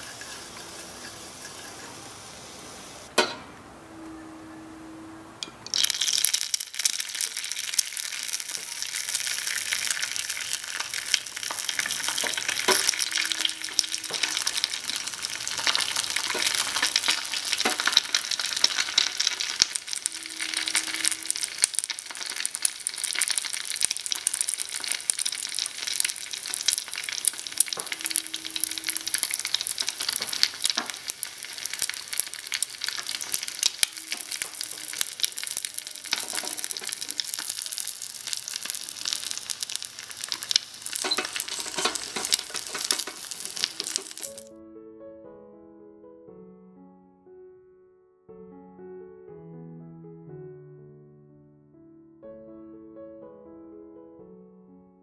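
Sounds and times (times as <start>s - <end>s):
egg sizzling in hot oil: 0.0s - 3.2s, 5.6s - 44.5s.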